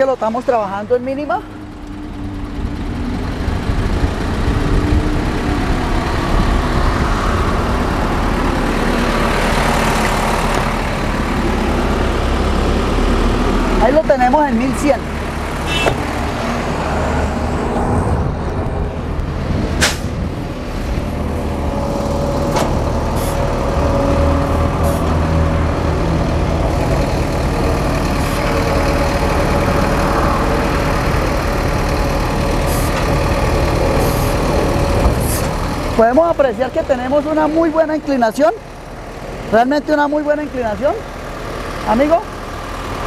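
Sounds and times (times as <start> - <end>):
truck engine low drone: 0.0 - 43.0
short sharp click or hiss: 19.8 - 20.0.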